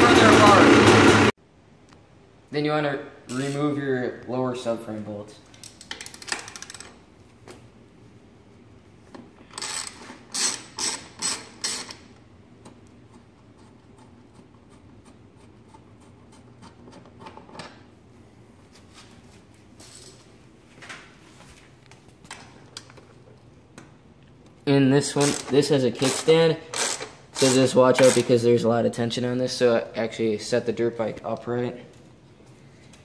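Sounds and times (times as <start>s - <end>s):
ratchet wrench clicking: 5.6s - 7.0s, 9.5s - 12.1s, 25.2s - 28.3s.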